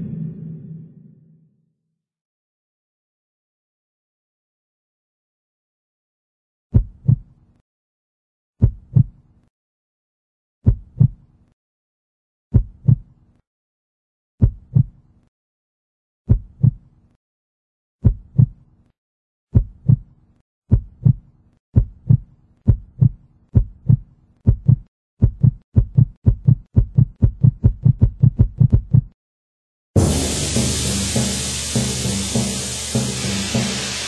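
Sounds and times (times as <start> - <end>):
heartbeat thumps: 6.7 - 7.2, 8.6 - 9.1, 10.6 - 11.2, 12.5 - 13.0, 14.4 - 14.9, 19.5 - 20.0, 20.7 - 21.2, 21.8 - 29.2
loud hissing burst: 30.0 - 34.0.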